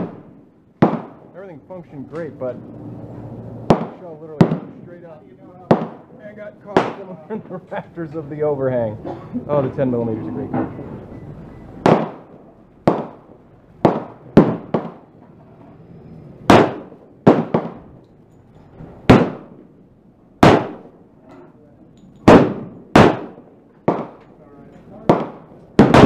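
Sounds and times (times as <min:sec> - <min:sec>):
pistol shots: 0:00.0 - 0:01.3, 0:03.7 - 0:04.8, 0:05.7 - 0:06.1, 0:06.7 - 0:07.1, 0:11.8 - 0:15.1, 0:16.5 - 0:17.9, 0:19.0 - 0:19.6, 0:20.4 - 0:21.0, 0:22.2 - 0:24.3, 0:25.0 - 0:26.0.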